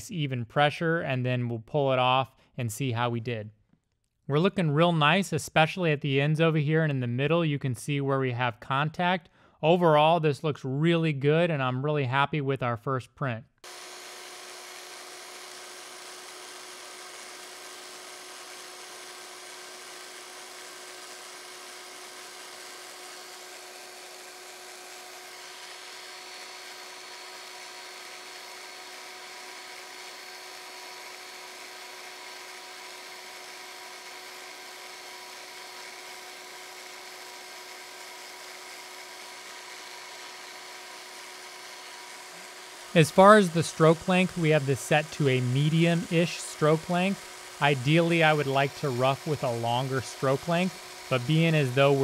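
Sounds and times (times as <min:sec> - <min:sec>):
power scraper whirring: 0:13.6 - 0:52.0.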